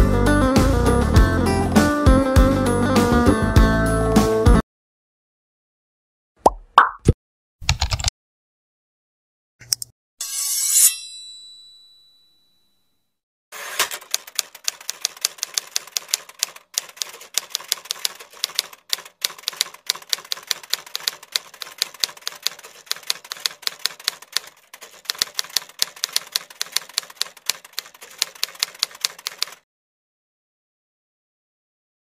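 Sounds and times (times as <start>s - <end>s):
typewriter keystroke clacks: 7.6s - 8.1s, 13.8s - 29.6s.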